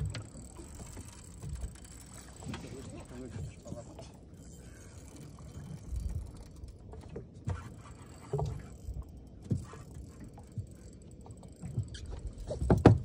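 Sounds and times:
water knocking against hull: 0.0 - 4.1, 9.4 - 13.0.

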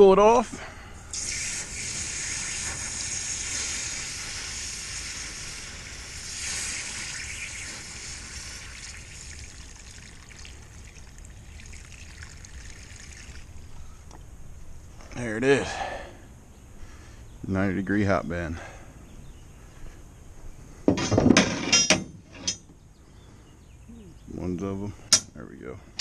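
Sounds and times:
water hissing on hot steel: 1.1 - 13.7.

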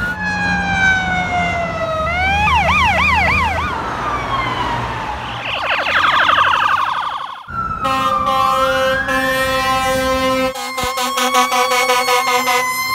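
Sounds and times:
electronic siren wail: 0.0 - 12.9
rapid siren yelp: 0.0 - 12.9
fire truck air horn: 7.7 - 12.9.

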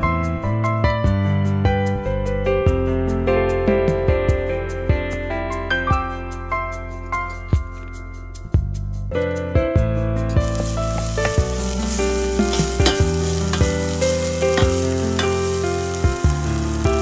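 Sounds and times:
paste sizzling in a pot: 10.4 - 17.0
spatula scraping a pot: 10.6 - 15.6.

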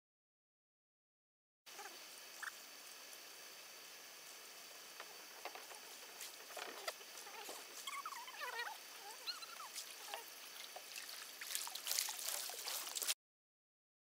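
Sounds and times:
bird calls: 5.5 - 13.1.

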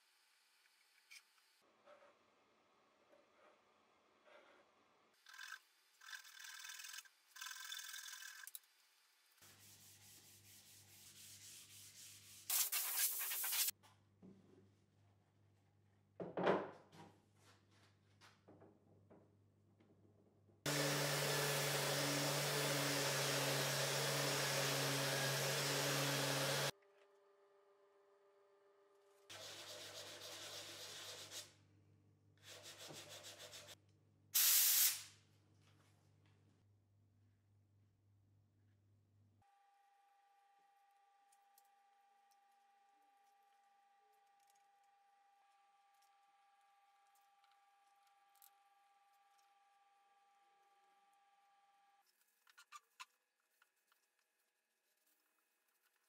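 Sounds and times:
sanding block rubbing wood: 9.4 - 13.7, 20.7 - 26.7, 29.3 - 31.5
sandpaper rubbing wood: 9.4 - 13.7, 29.3 - 31.5, 32.4 - 33.8
hand saw cutting wood: 20.7 - 26.7
short loud hiss: 34.4 - 35.1.

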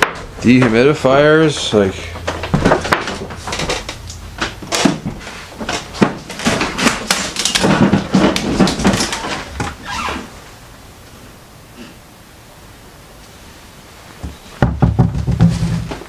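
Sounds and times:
items bumping and shifting: 0.0 - 10.3, 14.2 - 16.0
household items knocking: 1.7 - 9.5, 14.6 - 16.0.

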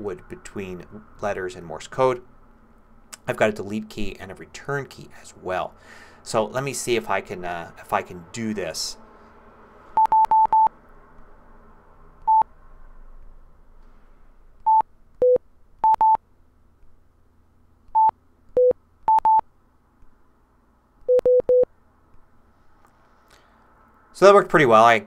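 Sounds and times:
morse code keyboard beeps: 10.0 - 10.7, 14.7 - 16.2, 18.0 - 19.4, 21.1 - 21.7.

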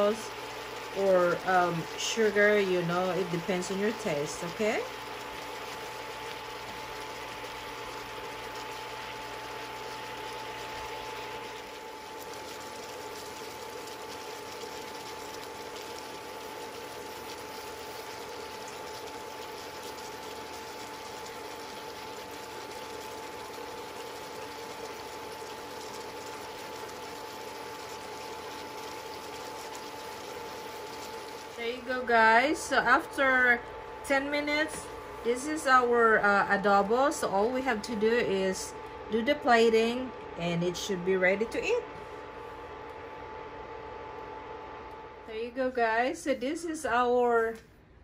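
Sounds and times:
food simmering bubbling hiss: 0.0 - 34.1
constant hum: 0.0 - 48.0.

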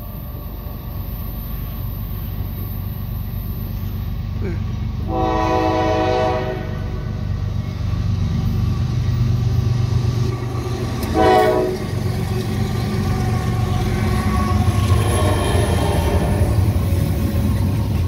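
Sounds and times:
diesel locomotives rumbling: 0.0 - 18.0
train horn blast: 5.0 - 7.1, 11.0 - 12.0, 14.4 - 16.7.

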